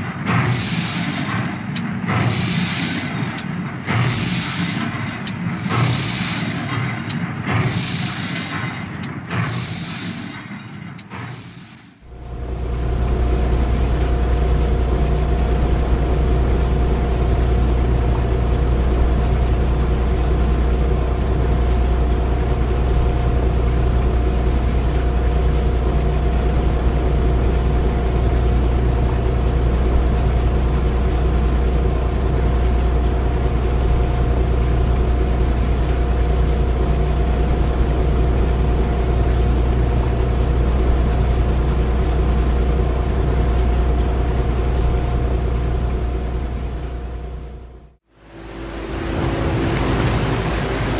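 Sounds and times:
large engine rumbling: 0:12.1 - 0:50.9.

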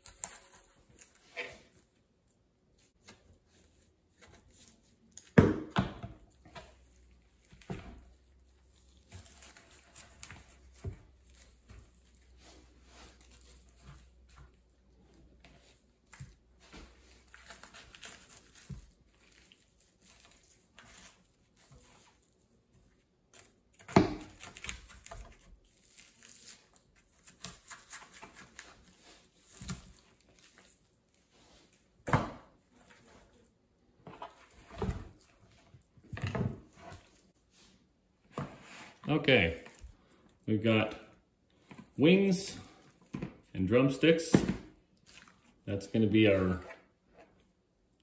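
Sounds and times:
knife tearing raw meat: 0:06.5 - 0:16.5, 0:17.1 - 0:22.4, 0:23.3 - 0:31.2, 0:45.0 - 0:45.6.

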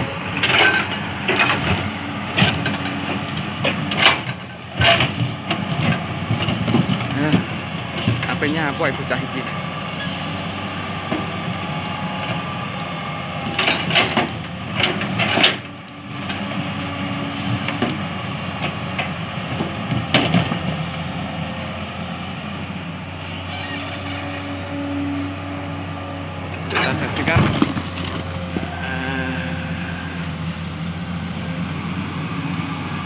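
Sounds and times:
excavator diesel engine running: 0:00.0 - 0:33.0
steel bucket scraping rock: 0:26.7 - 0:28.8.

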